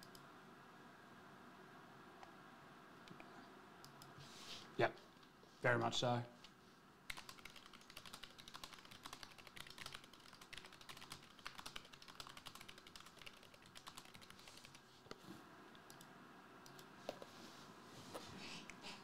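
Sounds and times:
typing on computer keyboard: 7.1s - 14.8s.

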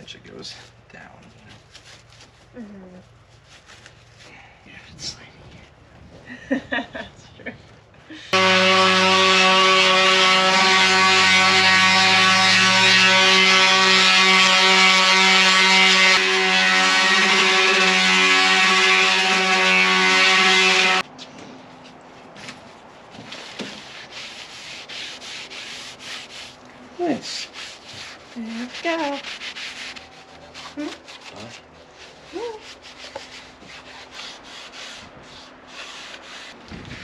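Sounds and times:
pad rubbing stain onto wood: 32.0s - 36.7s.

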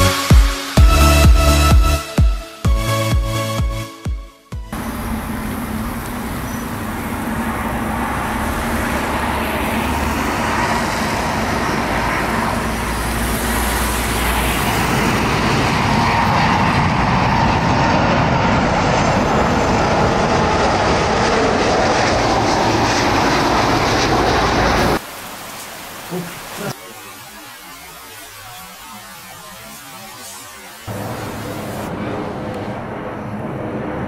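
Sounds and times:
jet airliner approaching overhead: 4.6s - 34.0s.

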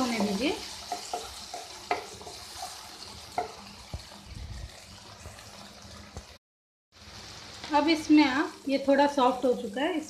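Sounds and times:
spatula scraping pan: 0.0s - 5.9s
vegetables sizzling in oil: 0.0s - 10.0s.

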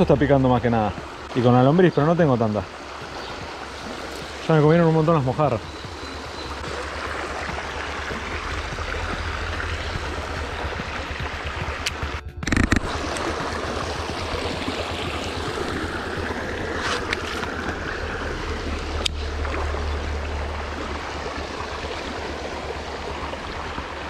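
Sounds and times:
shallow stream running: 0.0s - 24.0s
sharp clicks: 11.7s - 13.3s.

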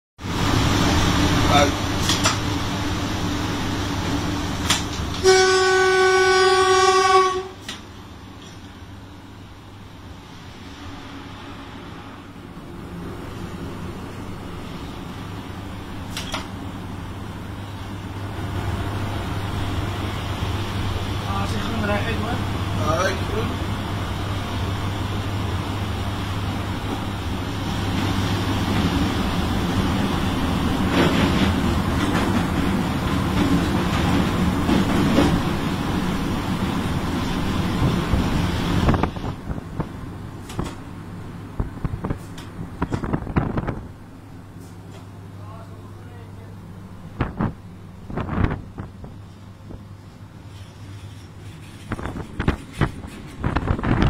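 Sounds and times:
steady background hum: 0.2s - 54.0s
locomotive horn blast: 5.1s - 7.7s.

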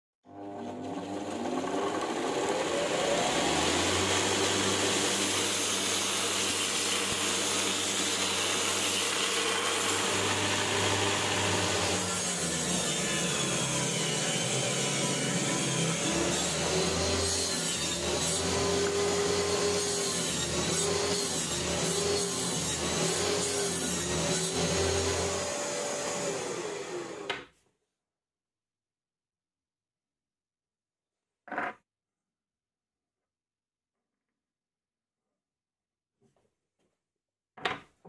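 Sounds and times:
belt grinder motor whine: 0.3s - 27.4s.

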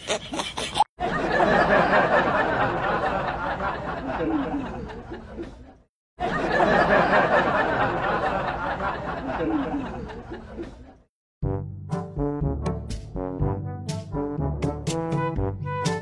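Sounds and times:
men talking and laughing: 1.0s - 11.1s.

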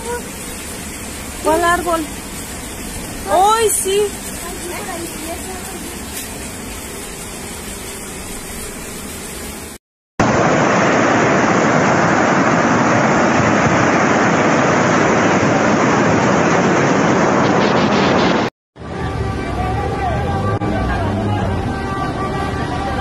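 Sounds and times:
floodwater rushing: 0.0s - 6.8s, 10.2s - 17.5s.

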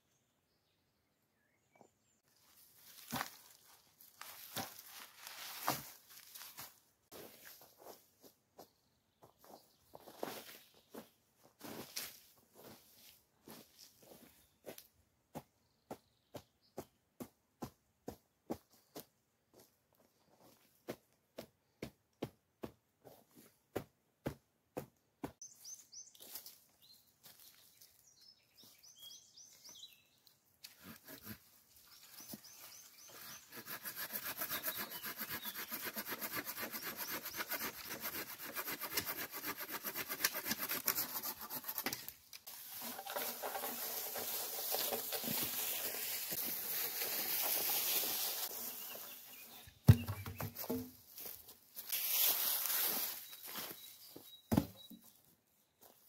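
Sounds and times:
bird chirps: 25.4s - 30.3s, 53.0s - 55.3s
hand saw cutting branch: 30.6s - 31.5s, 33.0s - 42.2s.

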